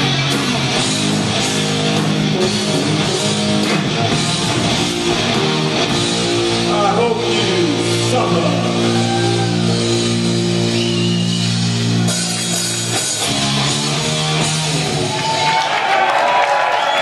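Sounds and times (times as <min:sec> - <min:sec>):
rock band holding a chord: 0:00.0 - 0:15.5.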